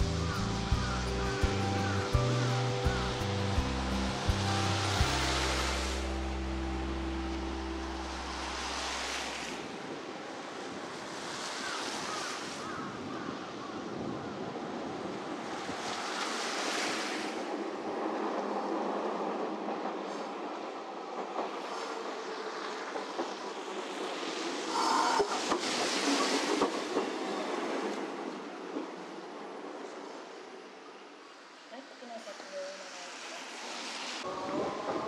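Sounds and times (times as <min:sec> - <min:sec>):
tram wheel and rail clatter: 0:00.0 - 0:12.0, 0:13.9 - 0:31.4, 0:33.1 - 0:35.0
tyre hiss on slushy road: 0:00.0 - 0:12.8, 0:15.6 - 0:17.5, 0:21.6 - 0:27.6, 0:31.7 - 0:34.7.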